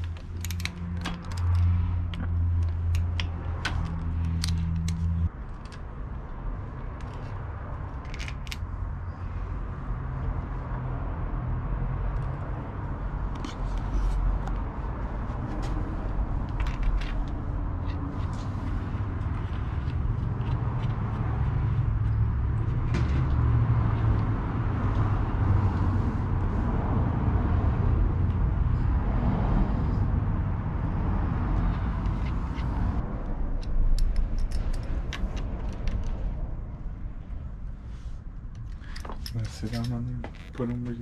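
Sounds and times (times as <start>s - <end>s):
metal parts clicking and tapping: 0.0s - 5.8s, 8.0s - 8.6s, 33.6s - 36.1s
low outdoor rumble: 0.0s - 41.0s.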